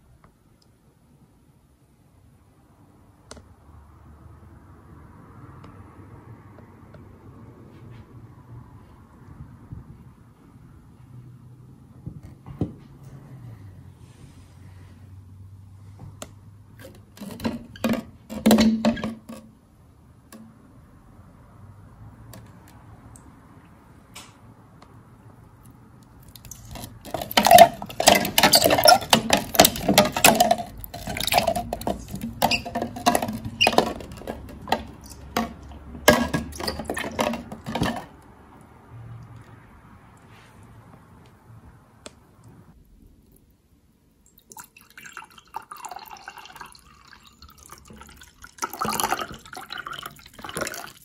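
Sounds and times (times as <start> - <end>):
ice cubes clinking in a jug: 26.4 - 38.1, 44.8 - 51.0.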